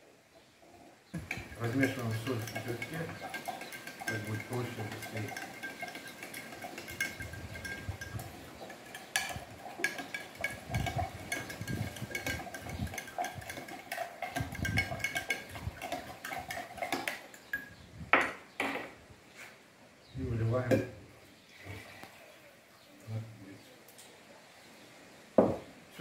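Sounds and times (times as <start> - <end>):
metal spoon clinking against glass: 1.2 - 17.8.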